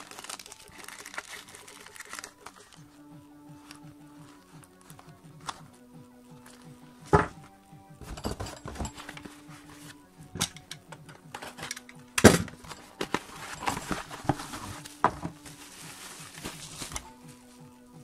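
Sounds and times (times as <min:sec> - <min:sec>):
bubble wrap rustling: 0:00.0 - 0:07.1, 0:12.5 - 0:18.0
cardboard flaps rustling: 0:12.2 - 0:17.6.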